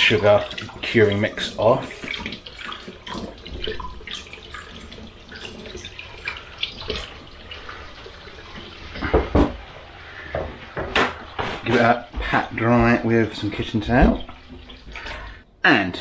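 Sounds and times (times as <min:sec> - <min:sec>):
knocks and thump: 0:09.0 - 0:09.6, 0:10.3 - 0:13.0, 0:13.9 - 0:14.6
tap running into steel sink: 0:10.3 - 0:12.2.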